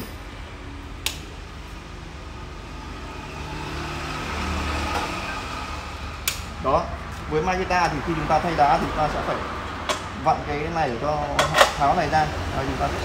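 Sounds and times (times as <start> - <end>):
sharp click: 6.2 - 6.5.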